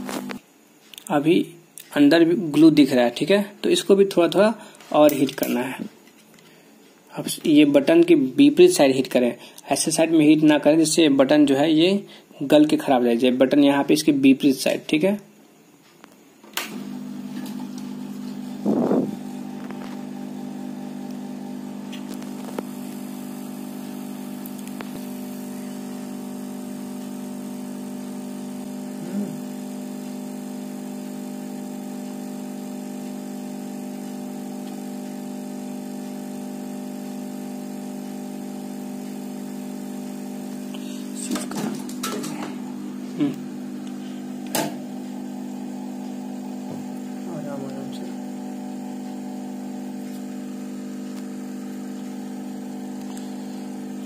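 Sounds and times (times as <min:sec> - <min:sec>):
hot air gun blower hum: 0:16.7 - 0:54.0.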